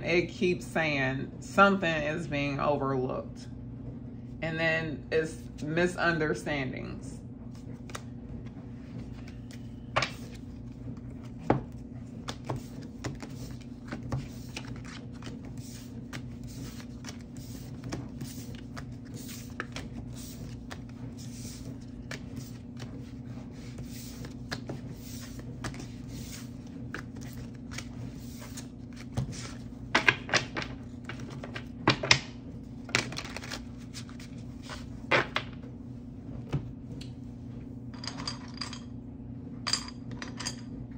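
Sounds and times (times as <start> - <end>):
low hum: 0.0 - 40.9
cards clicking and tapping: 11.4 - 22.9.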